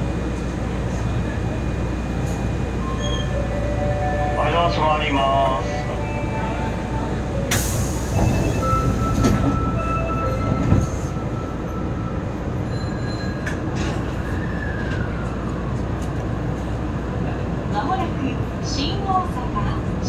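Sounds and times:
train low rumble: 0:00.0 - 0:20.0
thin squealing tones: 0:02.8 - 0:03.8.

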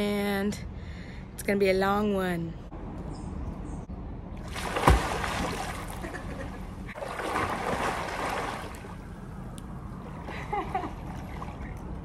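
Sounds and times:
swimmer splashing in pool: 0:04.5 - 0:06.1, 0:07.0 - 0:08.9.

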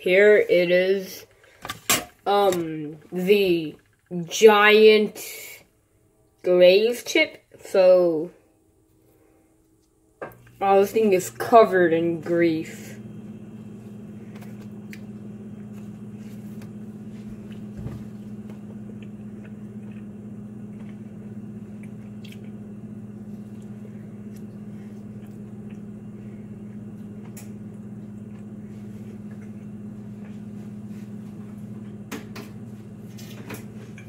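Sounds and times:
steady low hum: 0:00.0 - 0:34.0
soft chewing: 0:14.3 - 0:31.2.

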